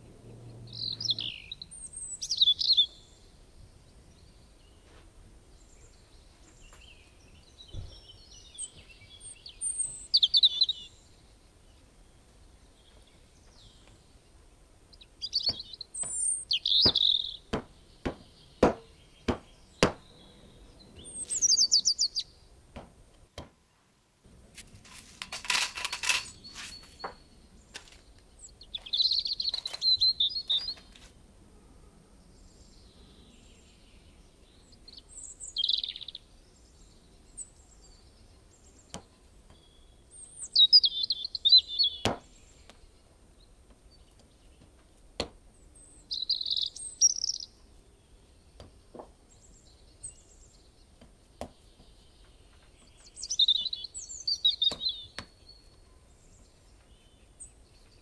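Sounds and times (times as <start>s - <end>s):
small birds chirping: 0.0s - 24.0s, 24.6s - 31.3s, 32.2s - 58.0s
sharp clicks: 25.2s - 26.8s.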